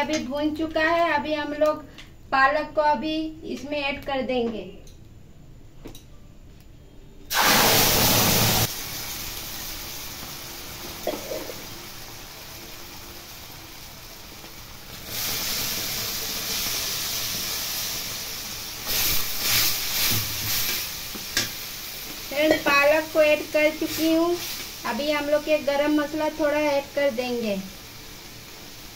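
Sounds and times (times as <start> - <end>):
food sizzling in hot oil: 7.3 - 28.9.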